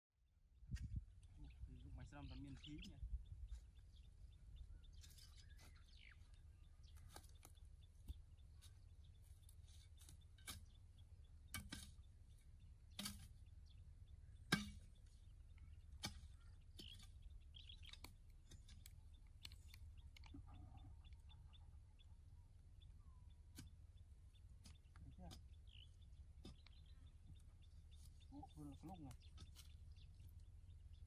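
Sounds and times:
faint chirps: 0:14.1 - 0:31.0.

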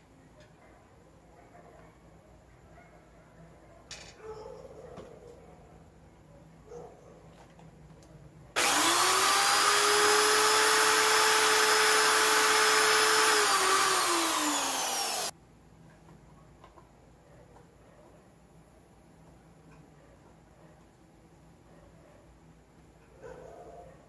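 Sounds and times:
power drill spinning: 0:08.6 - 0:15.3.

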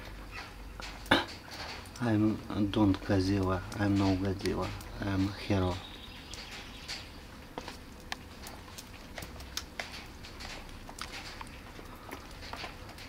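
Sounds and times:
cat eating crunchy food: 0:07.3 - 0:13.0.

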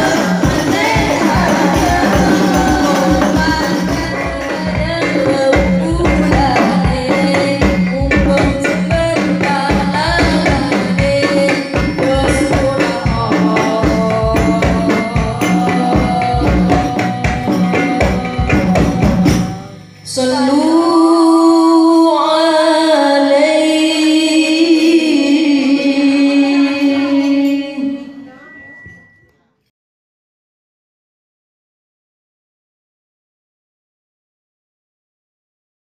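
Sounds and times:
frame drum percussion: 0:00.0 - 0:20.2
woman singing into microphone: 0:00.0 - 0:29.1.

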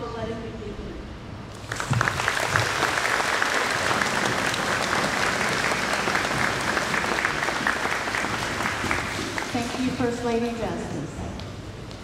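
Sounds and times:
audience applauding: 0:01.5 - 0:10.0.

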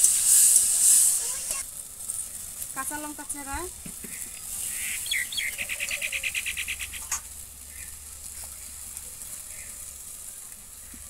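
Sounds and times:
food sizzling in a pan: 0:00.0 - 0:11.0
bird trilling: 0:04.1 - 0:08.0.

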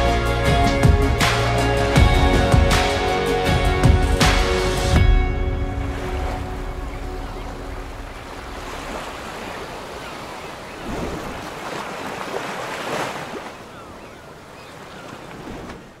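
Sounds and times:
waves washing in: 0:04.3 - 0:16.0.

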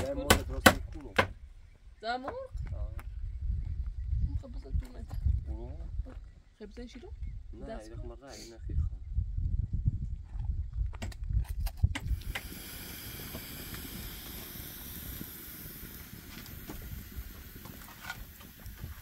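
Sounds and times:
wood fire crackling: 0:12.0 - 0:19.0.

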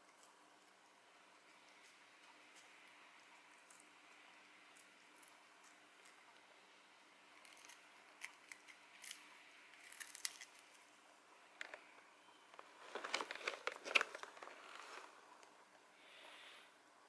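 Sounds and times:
foil pouch crinkling: 0:12.6 - 0:15.1.

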